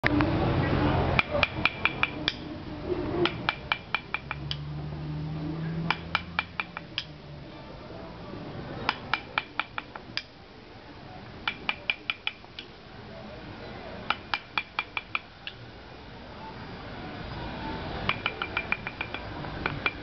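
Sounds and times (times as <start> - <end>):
mallet tapping a chisel: 1.2 - 2.5, 3.2 - 4.6, 5.8 - 7.2, 8.9 - 10.3, 11.4 - 12.7, 14.1 - 15.6, 18.1 - 20.0.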